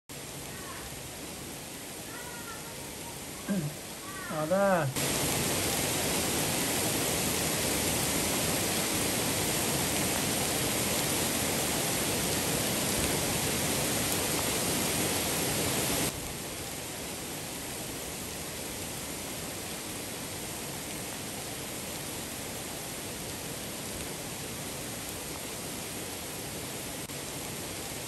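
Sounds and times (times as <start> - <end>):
rain pouring on shrubs: 0.1 - 28.0.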